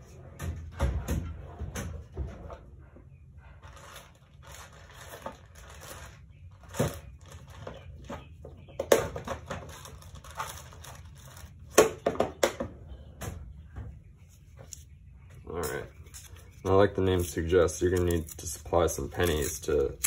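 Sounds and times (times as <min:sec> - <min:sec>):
packaging crinkling and rustling: 0:03.6 - 0:07.8, 0:09.5 - 0:11.8.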